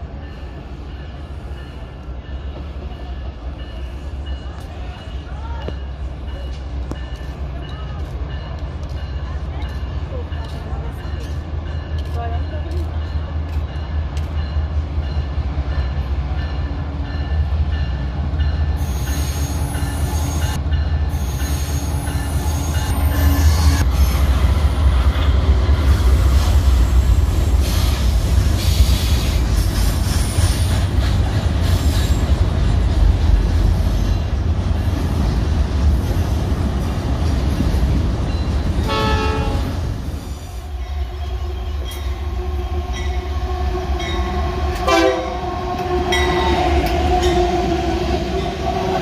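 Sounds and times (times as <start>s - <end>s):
train wheels clattering on rails: 0.8s - 23.0s, 23.8s - 39.7s
train wheel squeal: 18.8s - 24.3s, 25.9s - 30.9s, 31.6s - 32.4s.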